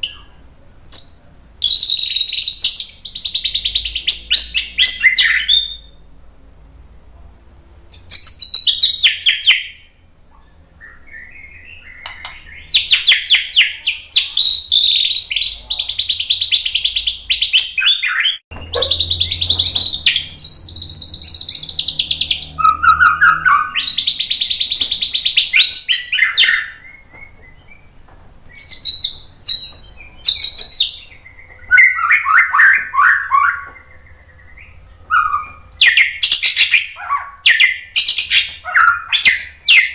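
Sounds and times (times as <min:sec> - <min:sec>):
songbird singing trills: 0:00.0 - 0:06.1, 0:07.7 - 0:39.9
faint low hum: 0:00.0 - 0:09.0.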